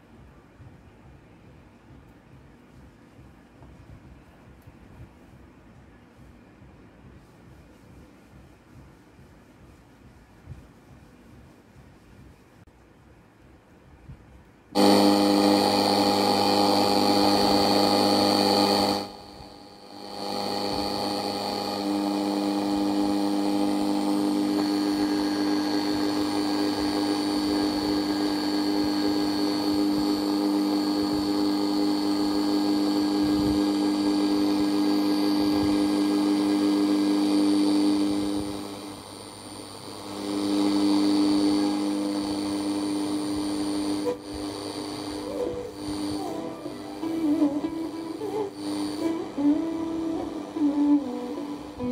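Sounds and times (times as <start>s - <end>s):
radio static buzzing: 14.8s - 51.9s.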